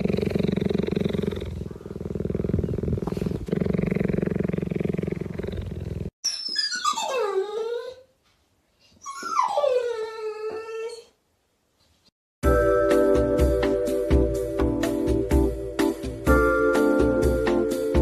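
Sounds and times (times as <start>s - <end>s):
cheetah purring: 0.0s - 6.2s
dog whining: 6.2s - 8.2s, 8.9s - 11.2s.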